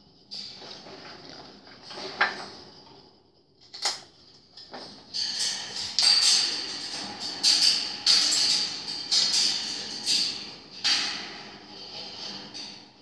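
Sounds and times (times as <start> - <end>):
wire birdcage rattling and clinking: 3.7 - 13.0
sharp knocks on cage: 5.8 - 11.6.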